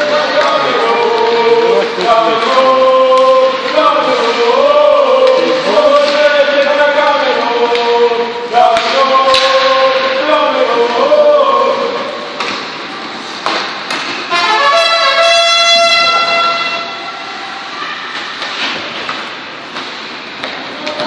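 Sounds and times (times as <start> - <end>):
sticks and puck clacking on ice: 0.0 - 10.4, 12.4 - 14.6, 18.1 - 21.0
spectators chanting and singing: 0.0 - 13.2
held horn-like tone: 14.3 - 17.3.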